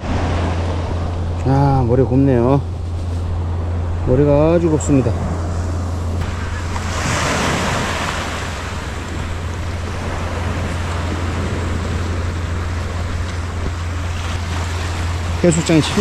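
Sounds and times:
wind rumbling on microphone: 0.0s - 16.0s
waves washing onto pebble beach: 6.2s - 12.6s.

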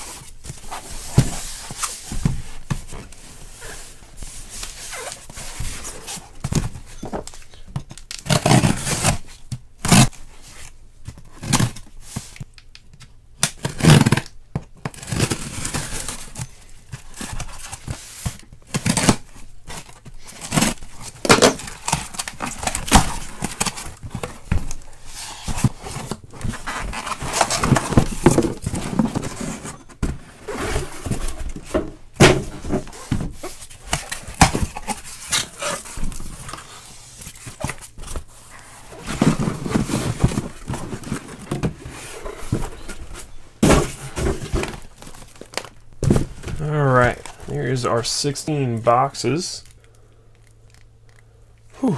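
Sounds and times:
boxes knocking and thunking: 0.1s - 9.8s, 13.9s - 47.4s
cardboard and tape tearing: 8.0s - 10.7s, 13.4s - 31.6s, 32.2s - 43.0s.

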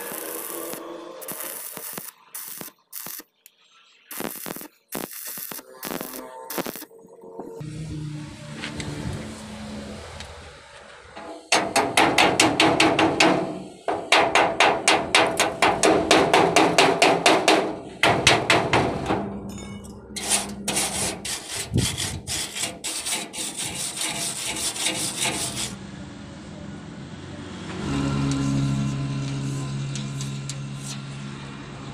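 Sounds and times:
scraping strokes over weld: 0.0s - 7.6s, 10.2s - 18.8s, 20.1s - 25.8s, 27.7s - 31.4s
chipping hammer striking metal: 11.5s - 19.7s.

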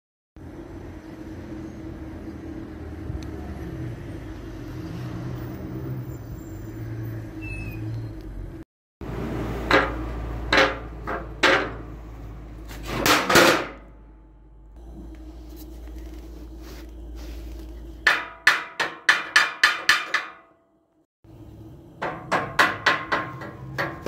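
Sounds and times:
metal knocks and clanks: 9.6s - 12.0s, 12.8s - 13.9s, 18.1s - 20.5s, 22.0s - 24.0s.

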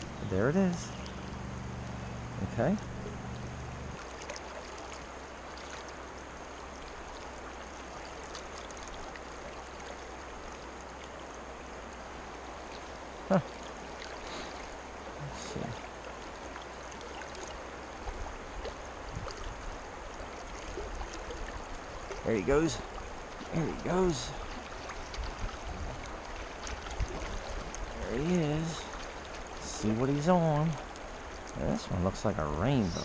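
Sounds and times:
creek water rushing: 0.0s - 33.0s.

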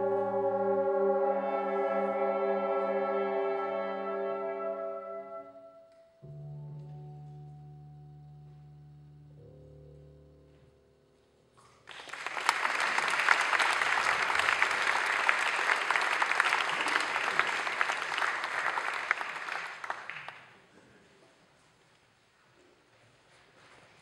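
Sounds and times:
audience applause: 11.9s - 20.5s.

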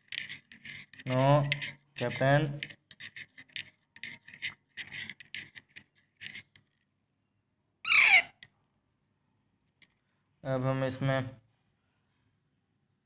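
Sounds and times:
metal spoon scraping ceramic cup: 0.0s - 6.7s
parrot harsh call: 7.8s - 8.4s.

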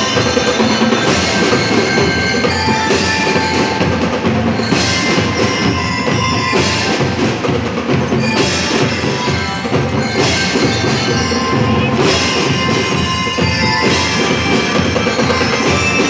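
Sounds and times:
bass and snare drums beating: 6.9s - 11.2s, 11.9s - 16.0s
bell lyres playing a tune: 7.8s - 16.0s.

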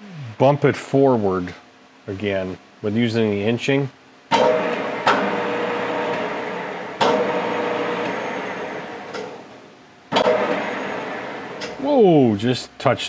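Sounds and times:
lathe motor starting and winding down: 4.4s - 9.4s, 10.2s - 11.9s.

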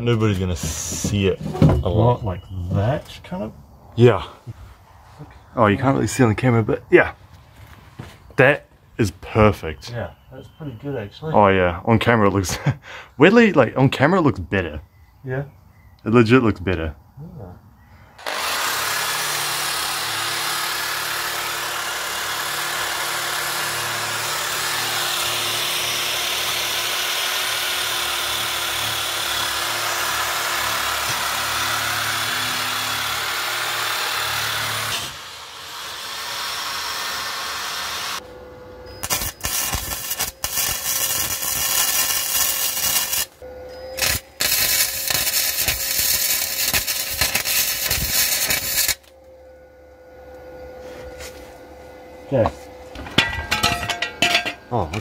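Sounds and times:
electric drill on metal pipe: 18.2s - 38.3s, 38.9s - 49.6s
welder crackling: 39.0s - 43.4s, 44.0s - 49.1s.

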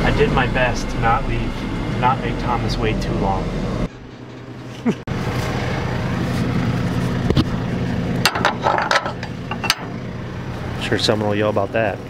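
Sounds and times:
diesel engine idling: 0.0s - 12.0s
sharp clicks and clanks: 8.2s - 10.0s.

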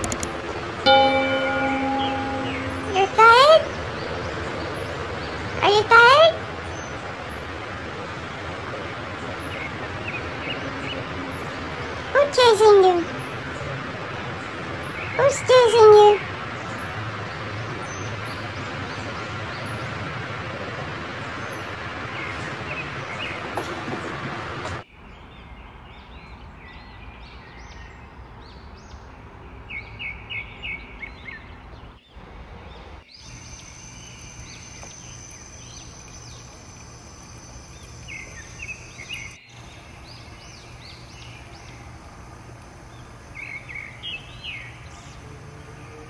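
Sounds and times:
small birds chirping: 29.8s - 45.3s
water hissing: 33.2s - 39.4s.

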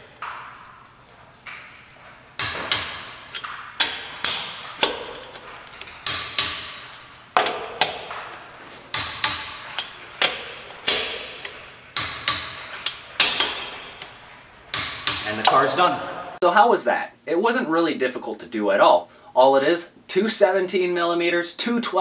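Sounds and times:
torque wrench clicking: 2.4s - 15.7s.

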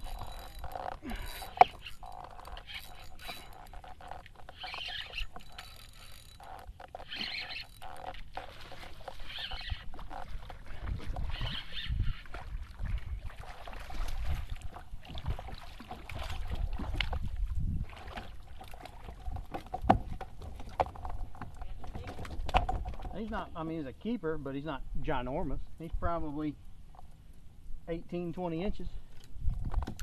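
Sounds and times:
fishing reel cranking: 0.0s - 10.4s, 11.3s - 12.3s
water splashing: 0.0s - 23.4s.

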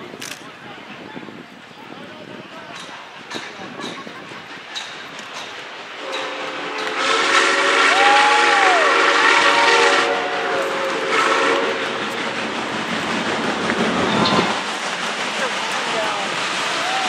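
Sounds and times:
steam locomotive whistle: 6.0s - 12.0s.

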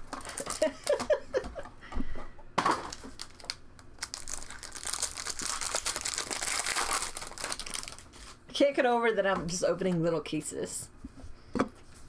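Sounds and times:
foil wrapper crinkling and tearing: 2.9s - 8.4s.

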